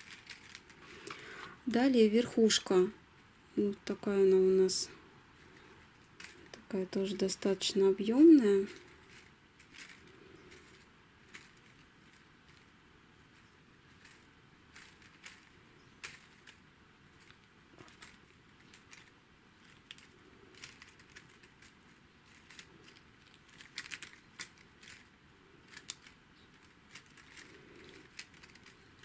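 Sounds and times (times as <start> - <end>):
sequin leaves clicking and rustling: 0.0 - 29.0.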